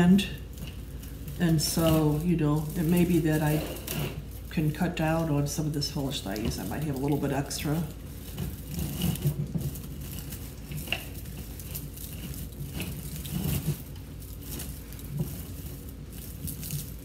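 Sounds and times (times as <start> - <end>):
greenery rustling and crackling: 0.0 - 17.0.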